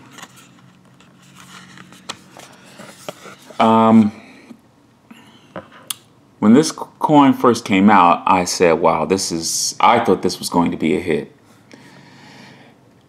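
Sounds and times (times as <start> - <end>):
card rustling and tapping: 0.0 - 3.6.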